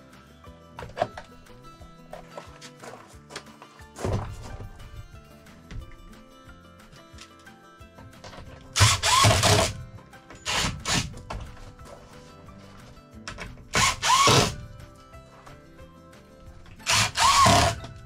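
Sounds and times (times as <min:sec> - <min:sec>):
cordless drill whining: 0:08.8 - 0:09.8, 0:10.4 - 0:11.2, 0:13.7 - 0:14.7, 0:16.8 - 0:18.0.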